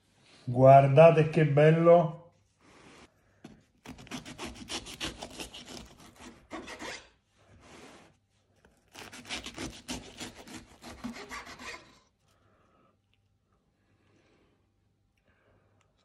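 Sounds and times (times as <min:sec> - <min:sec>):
knife sawing through bread crust: 0:03.8 - 0:12.2.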